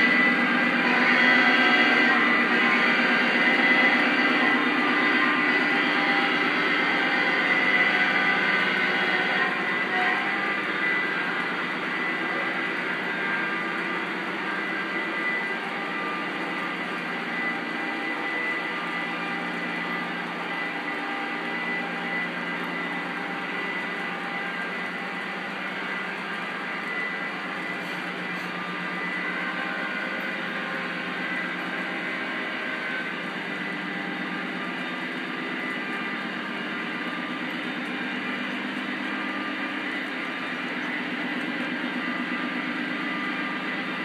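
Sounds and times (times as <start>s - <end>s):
model train wheels rumbling on rails: 0.0s - 44.0s.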